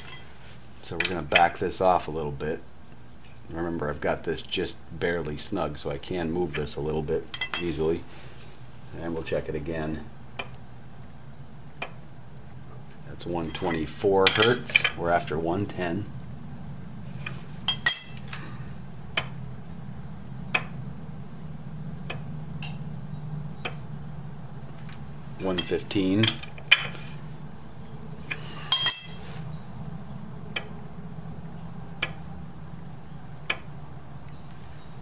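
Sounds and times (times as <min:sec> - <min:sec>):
spanner clinking on metal: 0:00.0 - 0:00.3, 0:07.3 - 0:07.9, 0:13.4 - 0:15.0, 0:17.7 - 0:18.6, 0:25.4 - 0:26.9, 0:28.6 - 0:29.7
steady low hum: 0:00.0 - 0:35.0.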